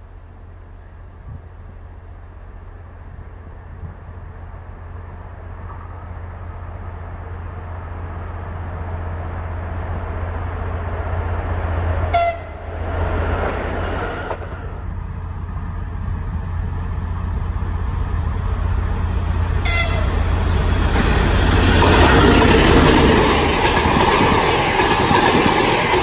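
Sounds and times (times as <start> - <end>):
diesel locomotive approaching: 0.0 - 26.0
locomotive rushing past: 0.7 - 26.0
train horn blast: 12.1 - 12.7, 19.6 - 20.3.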